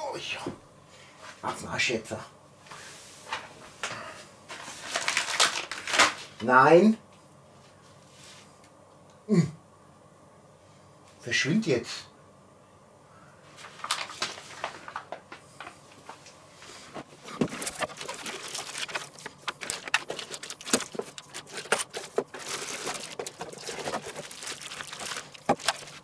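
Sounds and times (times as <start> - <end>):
plastic packaging crinkling: 4.6 - 6.3, 13.6 - 15.2, 17.1 - 26.0.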